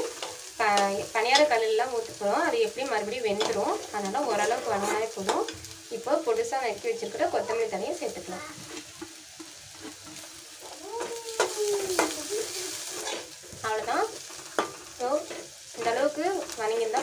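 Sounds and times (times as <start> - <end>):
onions sizzling: 0.0 - 17.0
metal spoon stirring and scraping: 2.9 - 5.7, 8.6 - 10.4, 12.8 - 16.6.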